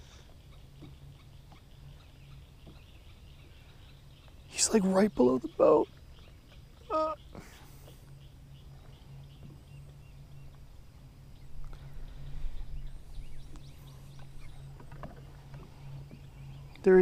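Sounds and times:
faint bird calls: 0.0 - 10.6, 11.2 - 17.0
steady low hum: 0.0 - 17.0
low rumble: 8.0 - 16.9.

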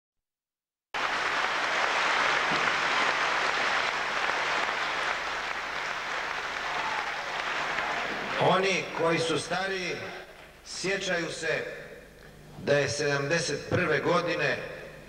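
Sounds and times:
audience applauding: 1.0 - 9.4.

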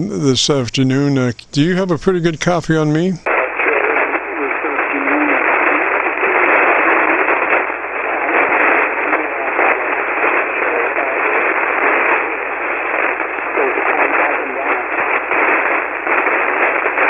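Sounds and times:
faint radio voice: 0.0 - 7.3, 8.1 - 9.9, 10.6 - 11.4, 13.6 - 15.0
radio static hiss: 0.0 - 17.0.

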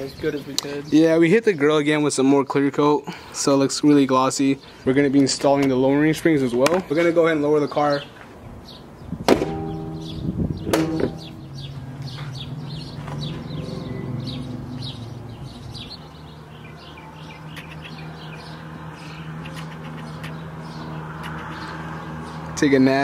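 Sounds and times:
bird chirps: 7.7 - 22.6
sharp knocks: 9.2 - 11.5.

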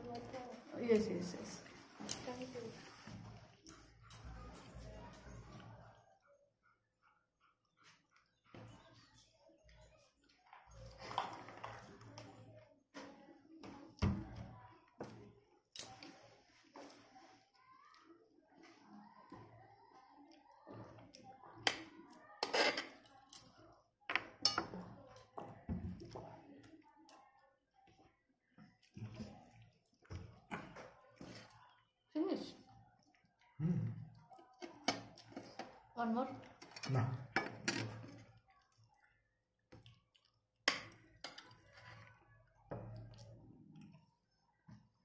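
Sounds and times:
spoons clinking on plates: 22.4 - 23.4, 24.1 - 24.8.

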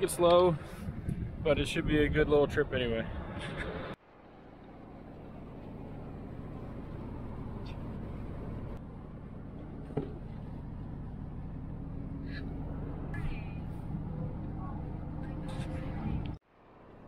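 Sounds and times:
truck engine and tyre rumble: 0.0 - 17.0.

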